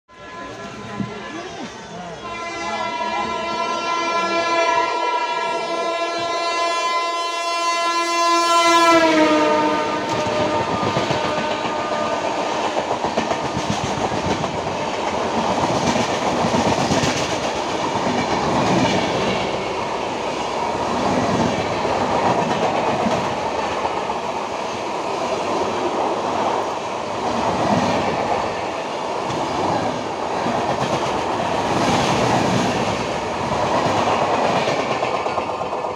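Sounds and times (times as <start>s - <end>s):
train horn blast: 0.1s - 12.7s
train coaches rattling past: 0.1s - 35.9s.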